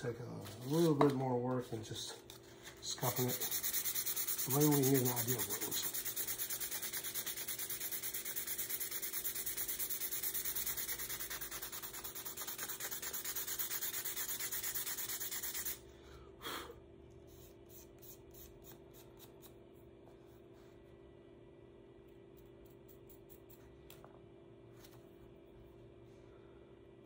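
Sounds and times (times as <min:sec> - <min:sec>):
steady low hum: 0:00.0 - 0:27.0
sandpaper rubbing wood: 0:02.9 - 0:15.8.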